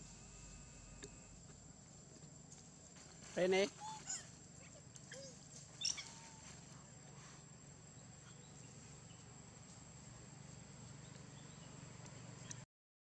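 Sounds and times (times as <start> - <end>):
high-pitched insect drone: 0.0 - 2.0.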